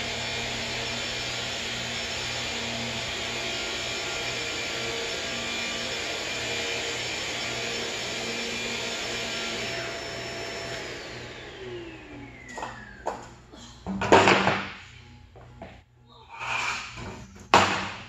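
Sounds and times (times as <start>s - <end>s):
vacuum motor winding down: 0.0s - 13.5s
vacuum cleaner motor whine: 0.0s - 15.7s.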